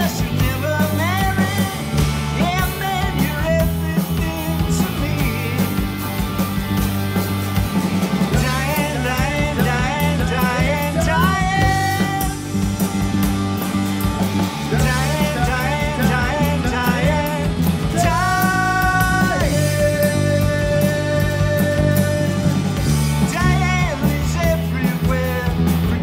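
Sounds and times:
person singing: 0.0s - 6.0s, 8.3s - 12.5s, 14.7s - 26.0s
rock band playing: 0.0s - 26.0s.

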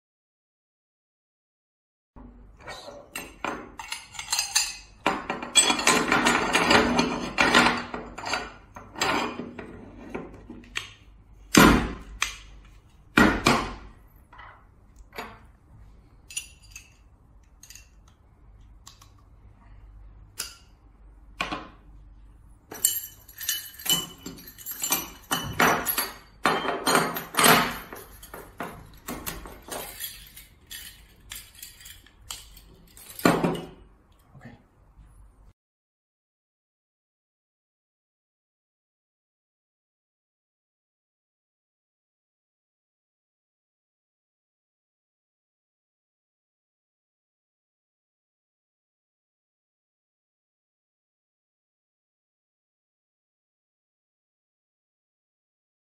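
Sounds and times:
metal fittings clinking: 3.2s - 4.9s, 16.3s - 18.0s, 22.7s - 33.8s.

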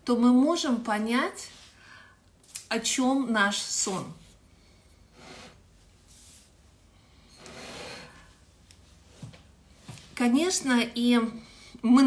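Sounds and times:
soft rustles: 5.8s - 6.8s, 8.7s - 10.2s.

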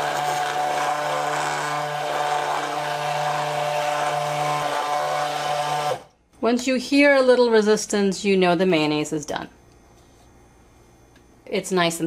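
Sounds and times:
hand blender motor whining: 0.0s - 6.1s.

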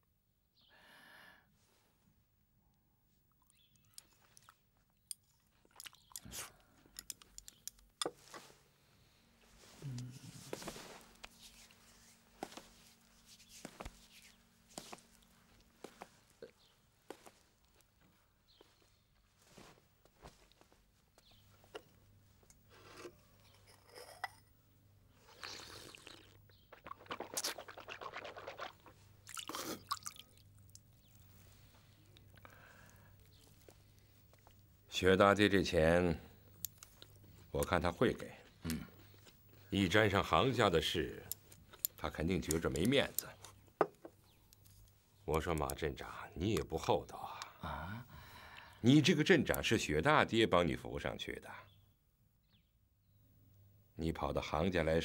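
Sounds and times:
quiet chewing: 3.3s - 8.5s, 25.2s - 34.8s, 36.4s - 39.7s, 41.2s - 45.8s
chopsticks clicking on bowls: 6.9s - 8.2s
man slurping: 9.8s - 10.4s, 25.2s - 30.2s.

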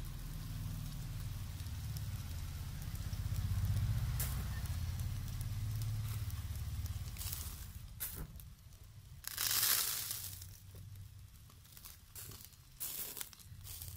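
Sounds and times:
faint crackling of grilling meat: 0.0s - 13.9s
low fluttering rumble: 0.0s - 13.9s
sharp crack: 1.6s - 13.9s.

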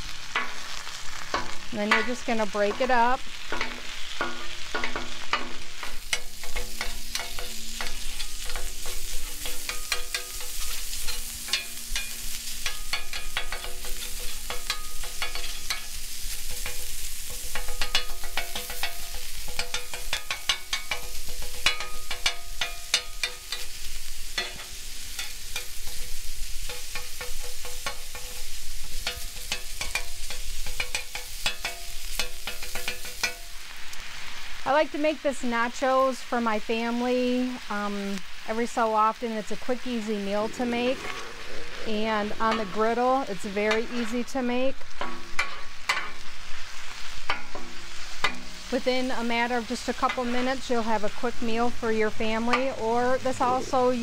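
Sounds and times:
meat sizzling on a griddle: 0.0s - 54.0s
spatula clicks and scrapes on steel: 3.5s - 23.7s.

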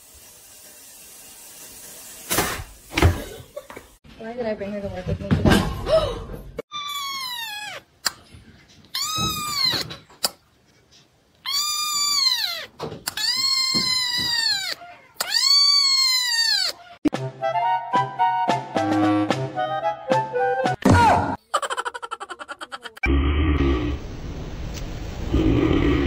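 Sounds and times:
kitten meowing: 6.7s - 7.8s, 9.0s - 9.9s, 11.4s - 16.8s.

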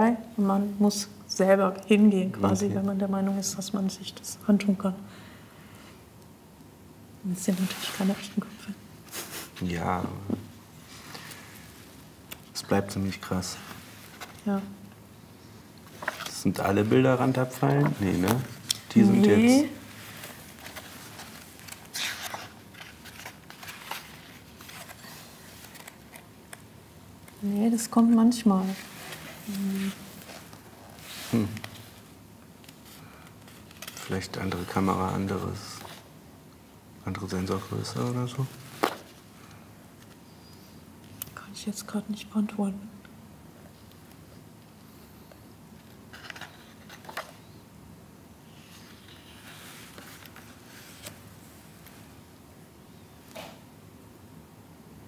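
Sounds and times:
paper pages turning: 15.8s - 26.6s, 32.6s - 36.1s, 37.6s - 39.2s, 45.8s - 47.5s, 48.6s - 52.0s.

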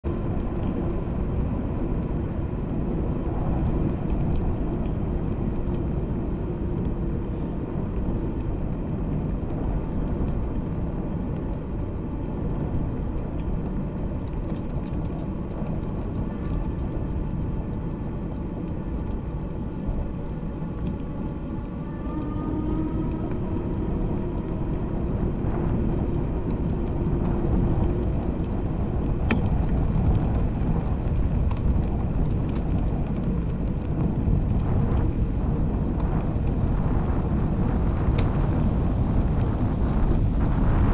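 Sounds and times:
wheels rumbling on paved path: 0.0s - 40.9s
faint whine: 0.1s - 40.9s.

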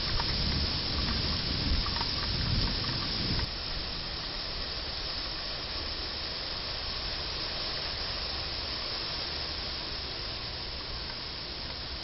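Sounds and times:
floodwater rushing along street: 0.0s - 12.0s
heavy downpour hissing: 0.0s - 12.0s.

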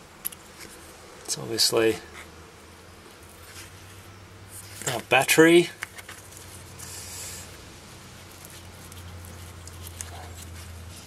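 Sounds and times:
fingers rustling and clicking: 8.2s - 11.0s.

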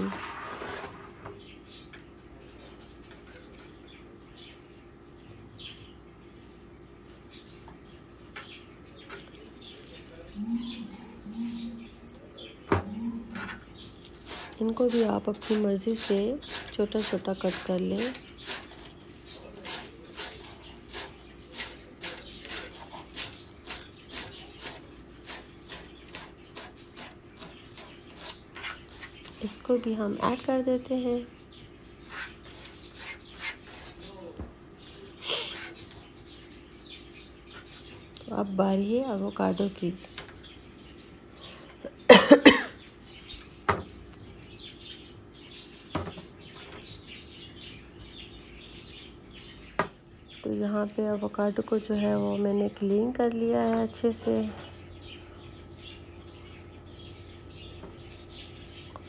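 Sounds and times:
faint bird chirps: 1.3s - 14.7s
person coughing hoarsely: 41.9s - 42.8s.

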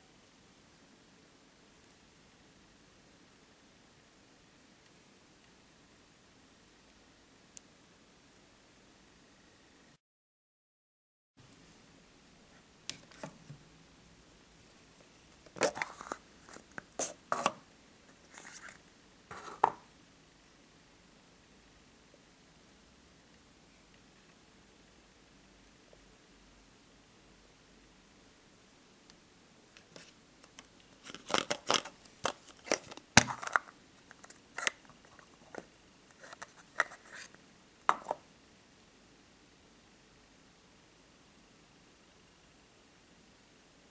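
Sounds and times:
plastic capsule snapping open: 30.4s - 34.9s.

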